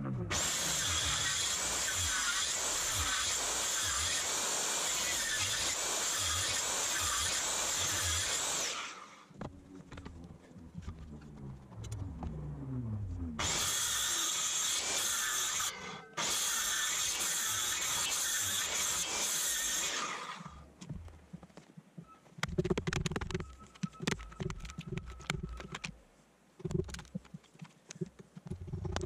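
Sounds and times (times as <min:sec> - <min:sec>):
power drill boring into wood: 0:00.3 - 0:09.2, 0:13.4 - 0:20.6
faint whine sliding in pitch: 0:09.4 - 0:13.4.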